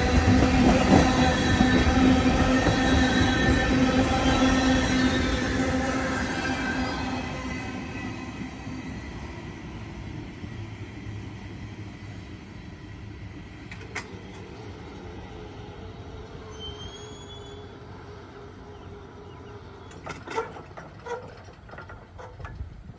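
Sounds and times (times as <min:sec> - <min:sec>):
freight train rumbling on rails: 0:00.0 - 0:22.9
wheel squeal: 0:16.5 - 0:17.8, 0:19.4 - 0:22.5.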